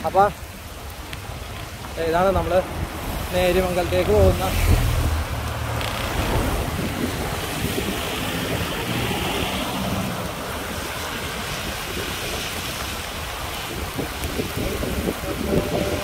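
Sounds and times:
bicycle tyre hiss on wet road: 0.0 - 16.0
car passing on wet road: 0.0 - 16.0
wind buffeting microphone: 0.6 - 16.0.

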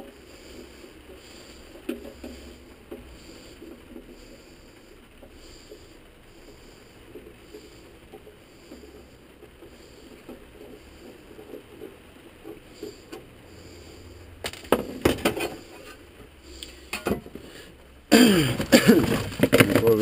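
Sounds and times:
packaging knocks and clatters: 18.4 - 20.0.

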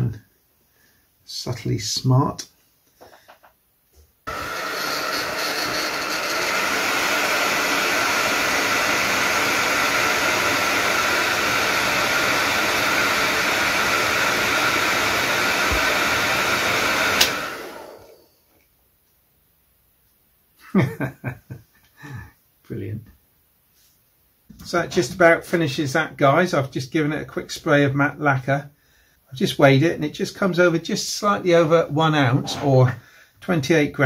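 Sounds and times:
small electric motor whirring: 4.3 - 18.3.

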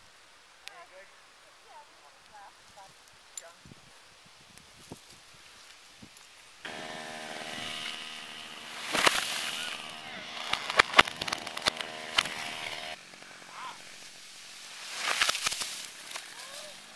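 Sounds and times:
chainsaw running: 6.6 - 16.9
tree falling crash: 6.7 - 16.9
wood cracking: 6.7 - 16.9.

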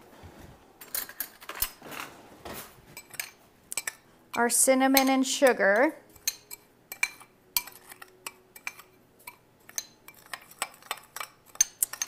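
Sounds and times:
metal spoon clinking glass bowl: 3.0 - 12.0.

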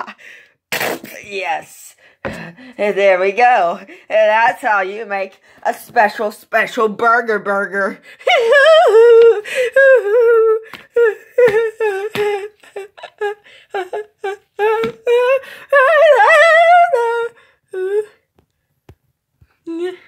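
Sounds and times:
child singing and humming: 19.6 - 20.0.

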